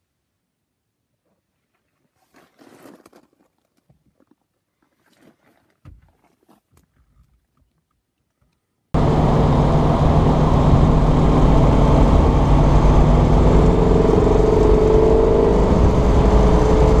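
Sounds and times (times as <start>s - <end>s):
car engine running: 9.0s - 17.0s
wind rush: 9.0s - 17.0s.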